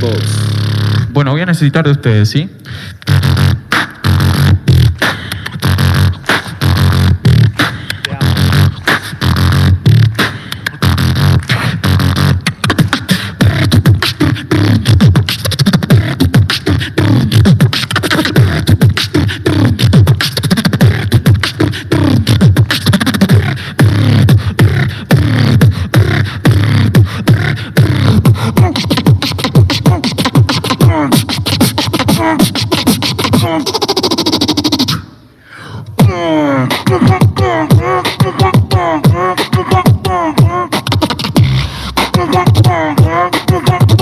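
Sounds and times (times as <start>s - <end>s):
beatboxing into microphone: 0.0s - 44.0s.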